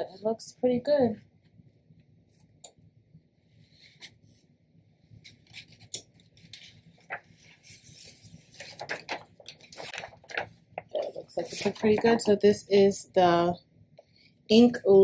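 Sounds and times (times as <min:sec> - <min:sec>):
transfer paper crinkling: 0:05.2 - 0:12.5.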